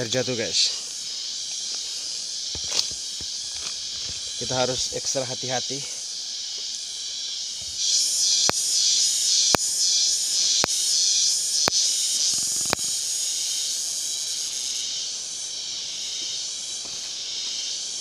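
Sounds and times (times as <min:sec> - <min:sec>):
forest insects buzzing: 0:00.0 - 0:18.0
sharp clicks: 0:10.4 - 0:10.8.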